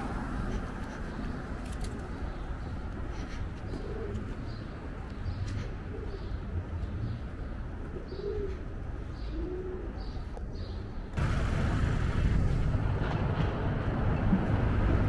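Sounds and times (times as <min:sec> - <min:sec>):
city hum: 0:00.0 - 0:15.0
pigeons cooing: 0:00.4 - 0:10.8
loud steady rushing noise: 0:11.2 - 0:15.0.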